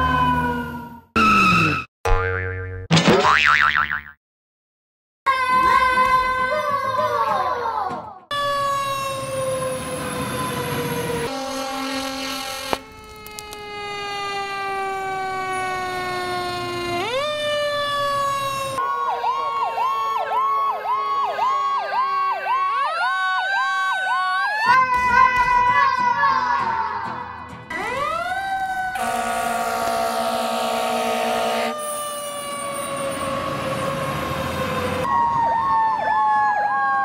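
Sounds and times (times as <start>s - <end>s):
fire truck siren wailing: 0.0s - 1.9s, 8.3s - 25.8s, 27.7s - 37.0s.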